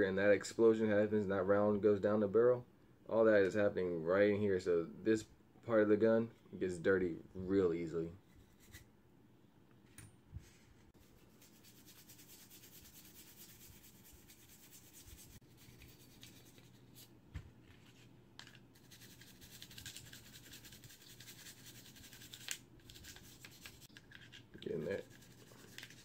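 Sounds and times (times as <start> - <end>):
brush scrubbing gun barrel: 18.4 - 26.0.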